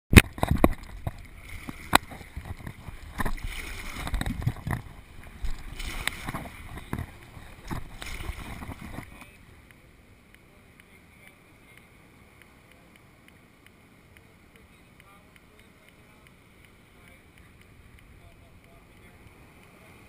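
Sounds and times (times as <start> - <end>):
paddle strokes splashing: 0.1 - 20.0
water sloshing against kayak: 0.2 - 11.5.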